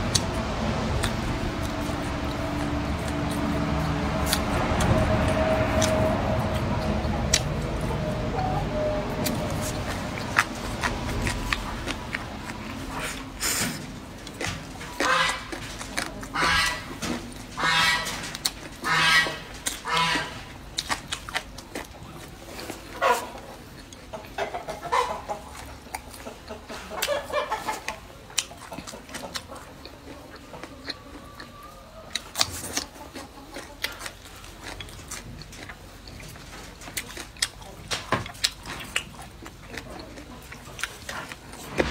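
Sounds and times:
chewing: 0.0 - 41.9
fowl calling: 15.0 - 15.6, 16.3 - 17.0, 17.6 - 18.2, 18.8 - 20.5.

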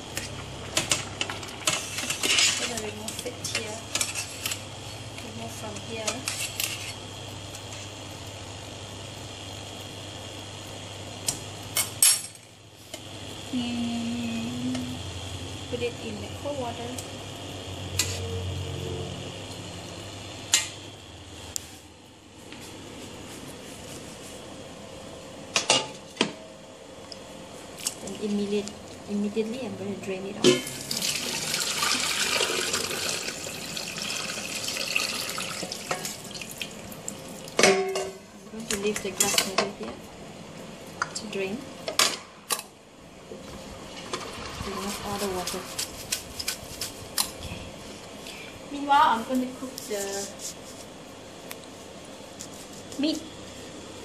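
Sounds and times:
low steady hum: 0.0 - 31.8
water pouring through strainer: 30.8 - 36.7, 43.8 - 46.0.

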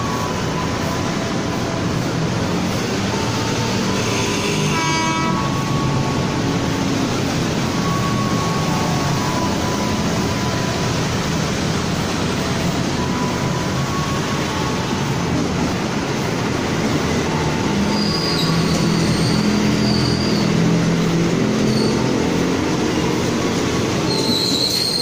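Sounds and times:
electric train approaching: 0.0 - 25.0
train horn toot: 3.2 - 6.1.

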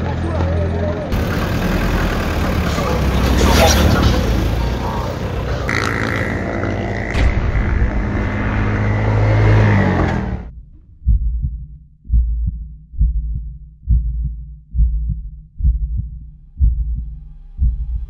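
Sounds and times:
loud droning sound: 1.1 - 11.8
heartbeat thumps: 10.5 - 18.0.

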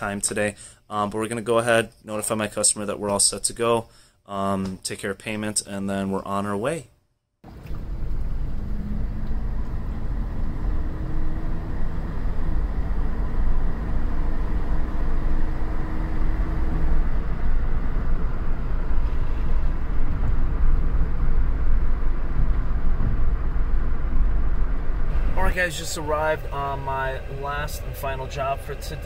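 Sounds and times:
car engine and road rumble: 7.4 - 29.0.

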